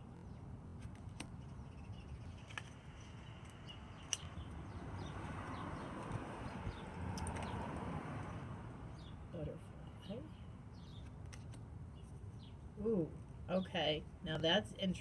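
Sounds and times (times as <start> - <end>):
playing cards tapping and clicking: 0.8 - 1.4.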